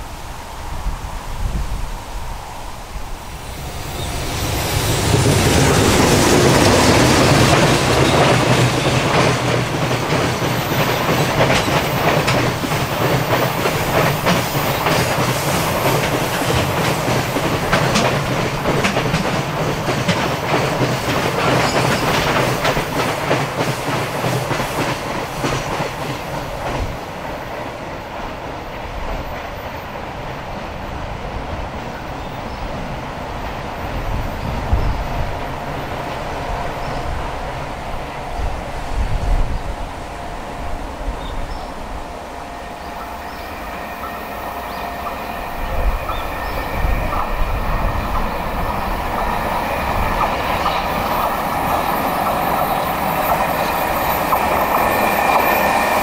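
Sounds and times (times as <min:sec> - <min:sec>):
train wheels clattering over rail joints: 0:04.4 - 0:27.8, 0:46.0 - 0:56.0.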